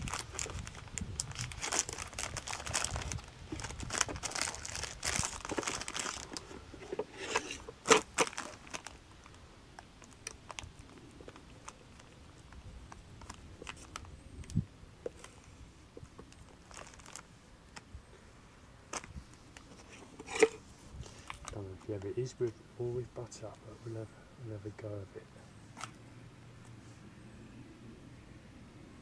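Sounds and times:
plastic wrapper crinkling and tearing: 0.0s - 15.3s, 16.3s - 17.3s.

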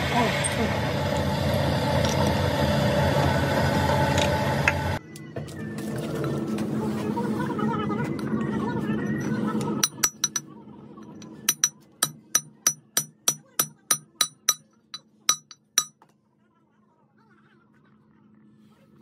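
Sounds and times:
hammer ringing on steel: 11.5s - 16.0s.

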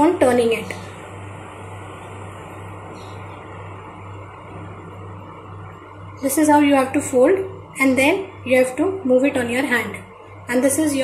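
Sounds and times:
low hum with hiss: 0.0s - 11.0s.

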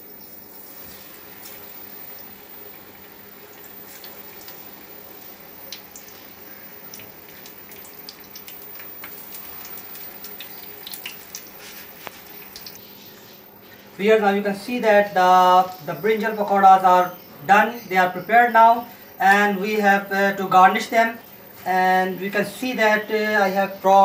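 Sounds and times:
crackles and pops of frying: 0.0s - 13.0s
pakoras deep-frying in oil: 0.0s - 24.0s.

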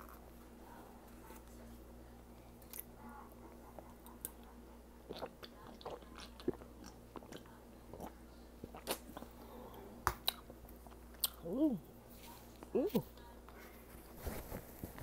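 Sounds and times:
chewing mouth sounds: 3.9s - 9.3s
person gulping and swallowing: 5.0s - 9.4s.

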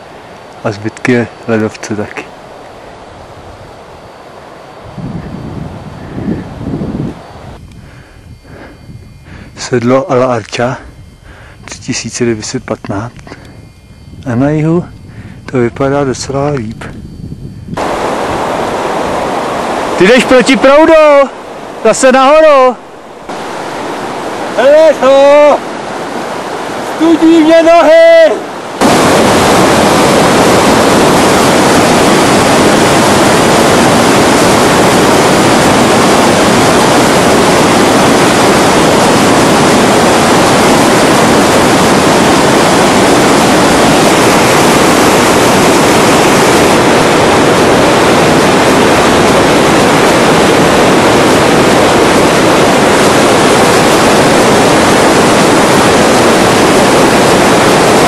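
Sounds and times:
mountain stream rushing: 17.8s - 58.0s.

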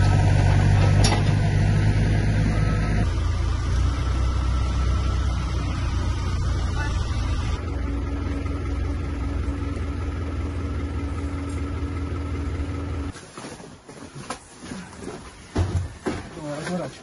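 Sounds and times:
heavy engine idling: 0.0s - 13.1s.

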